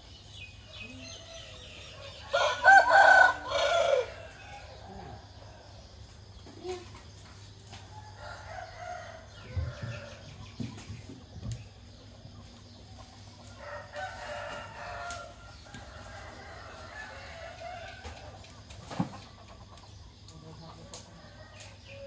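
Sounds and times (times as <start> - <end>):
roosters crowing: 0.7 - 6.0, 7.8 - 10.8, 13.0 - 19.7.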